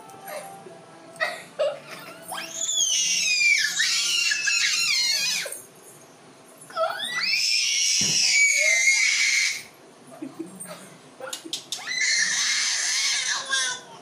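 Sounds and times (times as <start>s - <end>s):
baby squealing: 2.3s - 5.6s, 6.8s - 9.7s, 11.7s - 13.8s.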